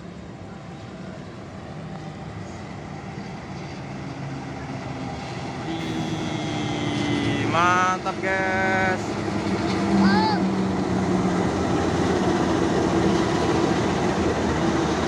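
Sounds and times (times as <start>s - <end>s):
diesel locomotive engine approaching: 0.0s - 15.0s
steady higher tone: 3.7s - 9.2s.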